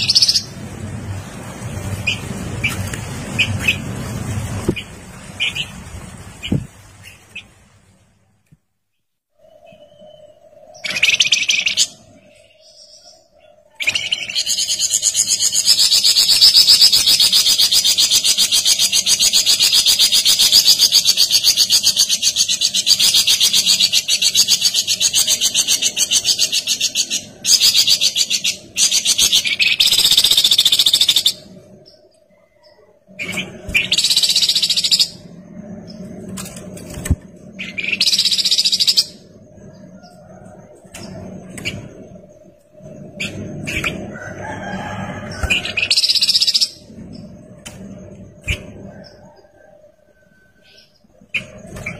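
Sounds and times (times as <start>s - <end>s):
bird singing trills: 0.0s - 0.6s, 9.4s - 36.1s, 37.5s - 40.4s, 45.2s - 47.3s.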